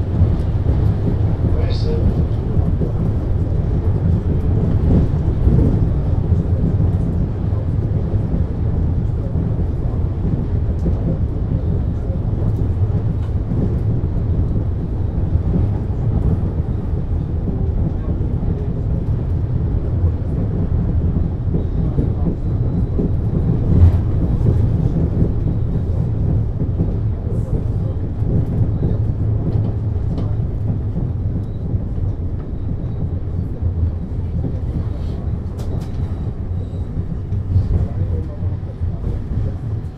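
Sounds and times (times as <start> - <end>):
railway car rumbling: 0.0 - 39.9.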